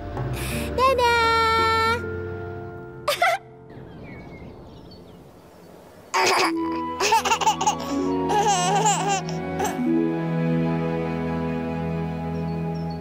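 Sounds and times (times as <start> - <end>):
soft background music: 0.0 - 5.5, 6.2 - 13.0
baby giggling: 3.1 - 3.5, 6.1 - 9.9.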